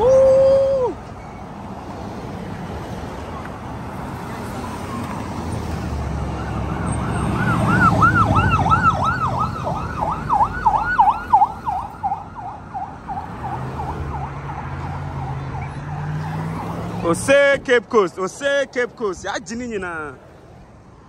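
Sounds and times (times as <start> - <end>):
vehicles driving past: 0.0 - 21.0
siren yelping: 6.2 - 17.0.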